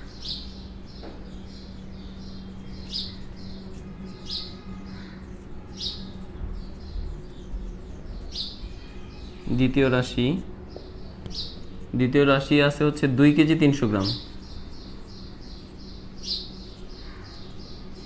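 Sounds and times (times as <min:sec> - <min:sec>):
marker squeaking on whiteboard: 0:02.5 - 0:12.0.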